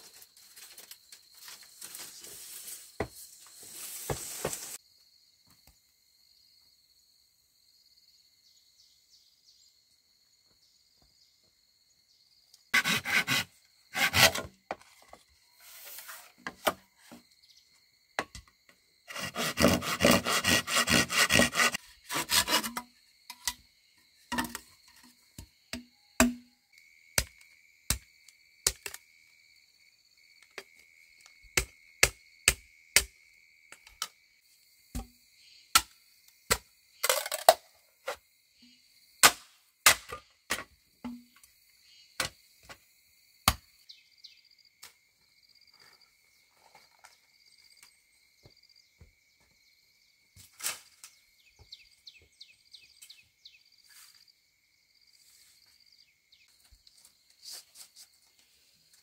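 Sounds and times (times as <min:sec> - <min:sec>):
tool strikes on bamboo: 0:25.4 - 0:26.5, 0:31.6 - 0:33.1, 0:34.9 - 0:35.9, 0:39.2 - 0:41.4
insects trilling: 0:41.0 - 0:58.8.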